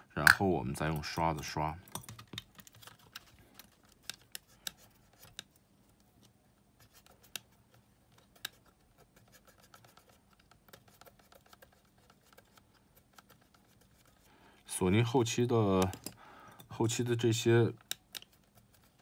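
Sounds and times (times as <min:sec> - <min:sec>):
cotton swab scratching metal: 0:03.7 - 0:05.7, 0:06.8 - 0:14.3, 0:17.3 - 0:19.0
small handling clicks: 0:15.7 - 0:16.7, 0:17.8 - 0:18.5.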